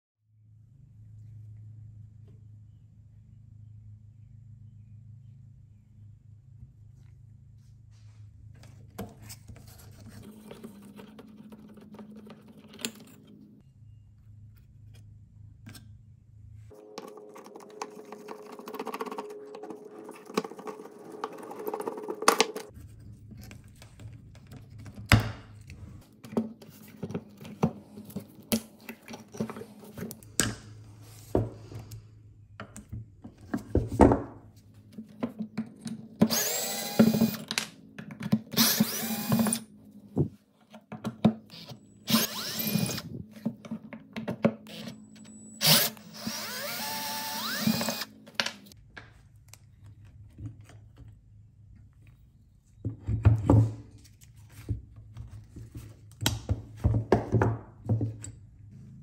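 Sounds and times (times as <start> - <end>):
cordless drill whirring: 36.3 - 37.4, 38.6 - 39.6, 41.5 - 43.2, 45.6 - 48.1.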